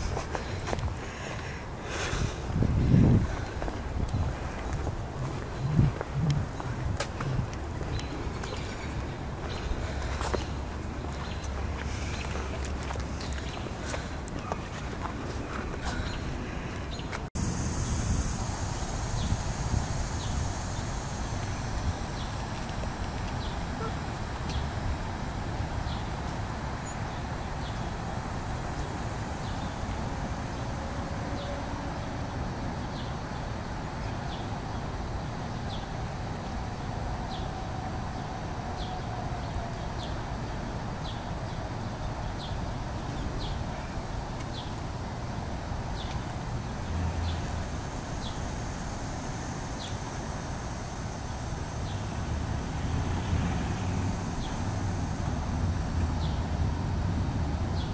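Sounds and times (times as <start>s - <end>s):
wind rumbling on microphone: 0.0s - 30.5s
bird chirping: 4.1s - 12.5s.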